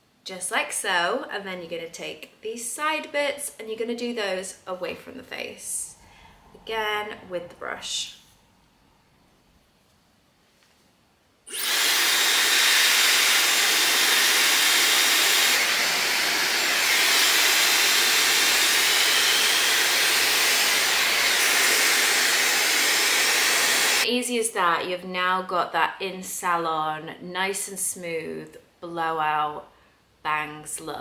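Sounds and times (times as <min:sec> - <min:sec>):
hair dryer blowing air: 0:11.5 - 0:24.1
hair dryer switching on: 0:11.5 - 0:24.1.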